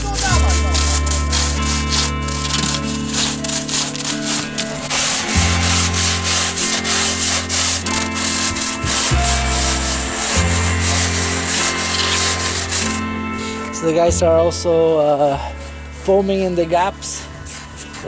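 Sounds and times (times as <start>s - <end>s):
scraper rubbing foam: 0.0s - 13.0s.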